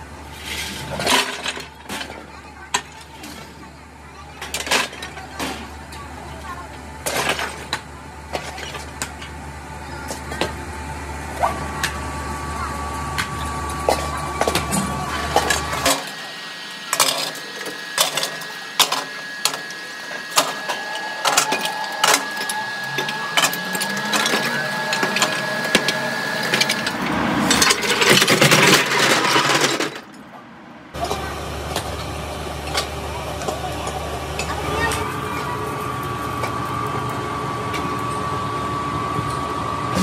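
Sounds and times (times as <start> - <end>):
scrap metal clanking into a hopper: 0.4 - 9.4, 20.3 - 30.2
thin whine: 9.8 - 29.9.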